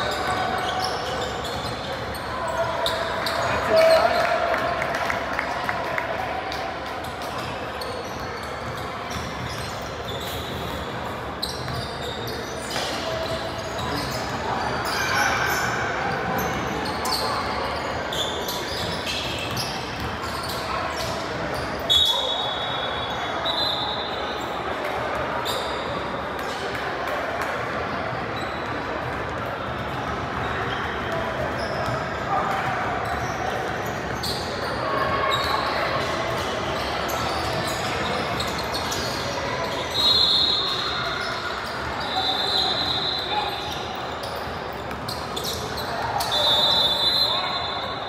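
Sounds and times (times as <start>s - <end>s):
sneaker squeaks: 0.0s - 4.5s, 6.9s - 26.8s, 28.3s - 48.0s
echoing sports hall noise: 0.0s - 48.0s.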